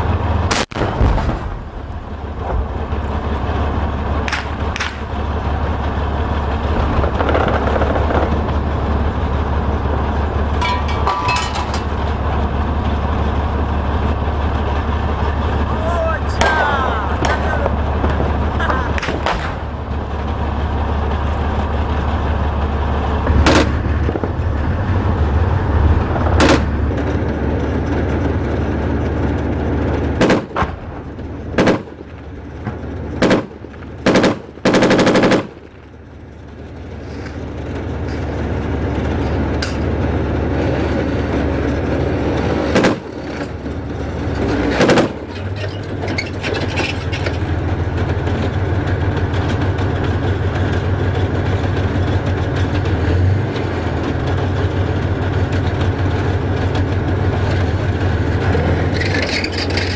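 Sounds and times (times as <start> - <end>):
tank engine and tracks rumbling: 0.0 - 59.9
gunshots: 30.2 - 30.8, 31.6 - 32.0, 33.2 - 35.6, 42.7 - 43.1, 44.7 - 45.2
automatic gunfire burst: 33.2 - 35.6.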